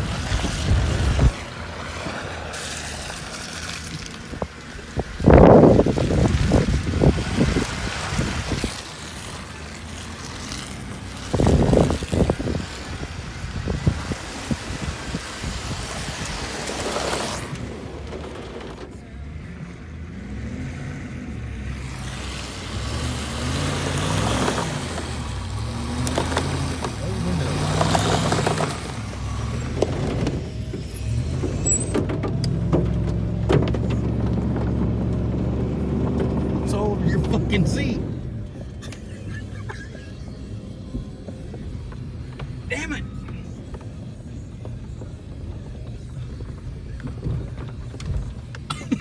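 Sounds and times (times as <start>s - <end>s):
tyres splashing through mud: 0.0s - 40.1s
truck engine under load: 0.0s - 42.7s
mud spattering against truck body: 22.9s - 36.7s
heavy knocks and thumps: 31.4s - 34.9s.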